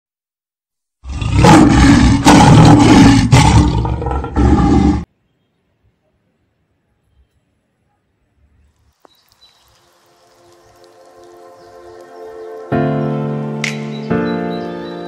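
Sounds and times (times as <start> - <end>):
loud roar-like sound effect: 1.0 - 5.1.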